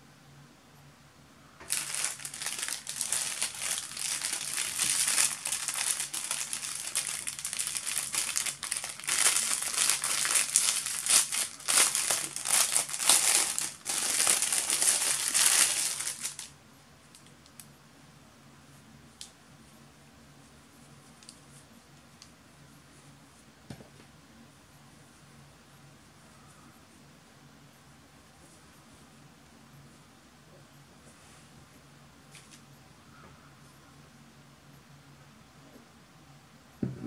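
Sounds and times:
plastic bag crinkling: 1.7 - 16.5.

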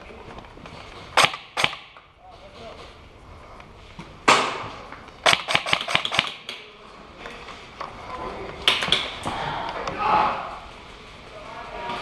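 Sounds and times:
airsoft gun shots: 1.2 - 2.0, 5.2 - 6.5.

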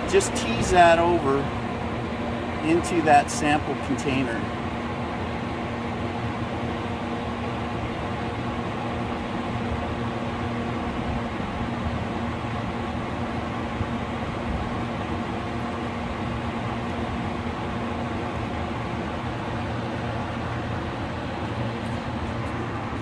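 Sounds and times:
steady machine hum: 0.0 - 23.0.

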